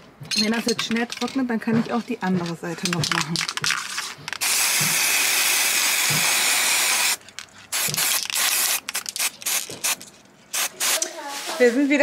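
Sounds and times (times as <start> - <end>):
spray paint can hissing: 3.8 - 11.2.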